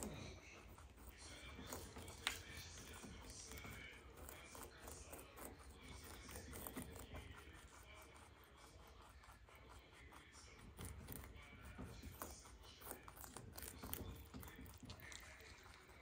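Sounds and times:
rabbits nibbling leaves: 0.0 - 16.0.

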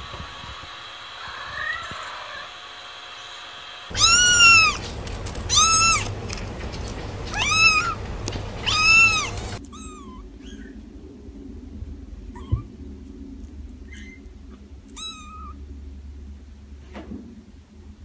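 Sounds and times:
kitten meowing: 1.4 - 2.2, 3.9 - 4.8, 5.5 - 6.1, 7.3 - 8.0, 8.6 - 10.7, 12.4 - 12.7, 14.9 - 15.6
faint squeaky kitten mews: 3.9 - 4.8, 5.5 - 6.1, 8.6 - 10.8, 12.3 - 12.7, 13.9 - 14.3, 14.9 - 15.6.

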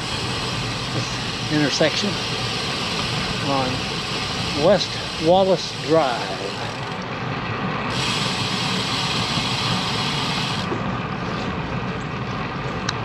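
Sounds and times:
bright hiss: 0.0 - 6.6
bicycle road noise: 0.0 - 13.0
wind noise: 7.1 - 12.9.

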